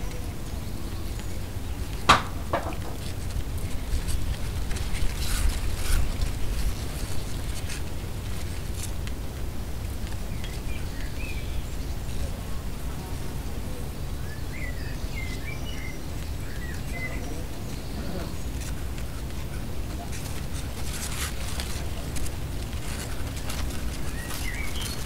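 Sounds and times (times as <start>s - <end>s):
wind buffeting microphone: 0.0s - 25.0s
vent slats clattering: 2.1s - 3.1s
bird chirping: 10.2s - 12.4s, 14.0s - 18.7s, 23.3s - 25.0s.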